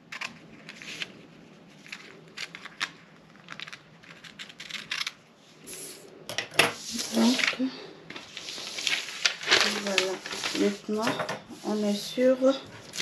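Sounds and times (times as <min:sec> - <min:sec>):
paper rustling: 0:00.0 - 0:05.2, 0:06.7 - 0:13.0
scissors snipping paper: 0:01.9 - 0:05.2.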